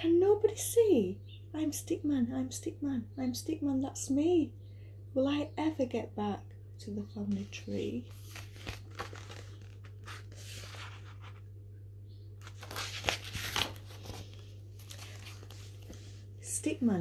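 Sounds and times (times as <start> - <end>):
book pages rustling: 7.3 - 11.5, 12.4 - 16.3.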